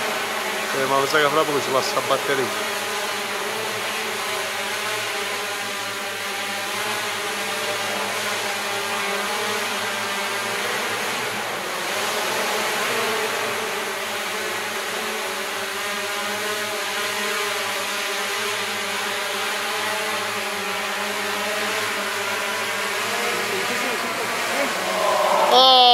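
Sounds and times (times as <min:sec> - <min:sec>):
drone buzzing: 0:20.0 - 0:25.9.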